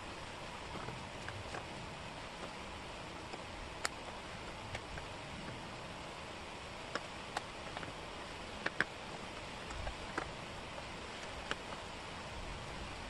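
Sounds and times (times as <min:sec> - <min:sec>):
faint hiss: 0:00.0 - 0:13.0
wooden puzzle pieces clicking: 0:08.6 - 0:08.9.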